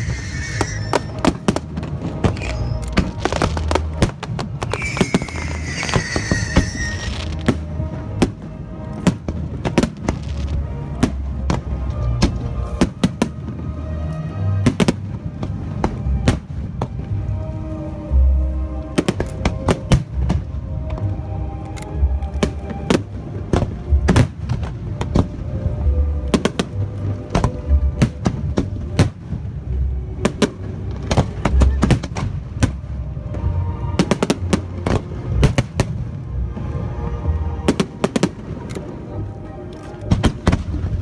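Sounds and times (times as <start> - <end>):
fireworks bangs and booms: 0.0 - 13.8, 14.5 - 17.2, 22.4 - 25.6, 26.3 - 36.8, 40.1 - 41.0
music: 0.0 - 41.0.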